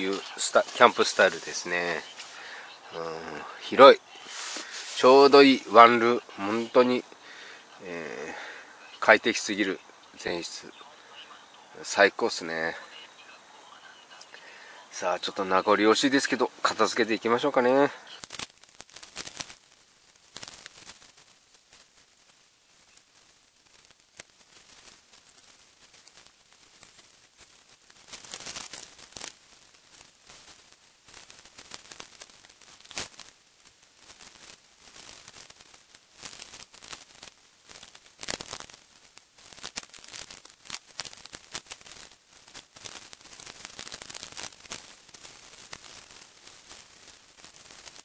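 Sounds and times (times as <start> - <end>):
camping gear rustling: 0.0 - 2.9, 4.1 - 5.4, 20.2 - 48.0
sharp crackles: 0.0 - 48.0.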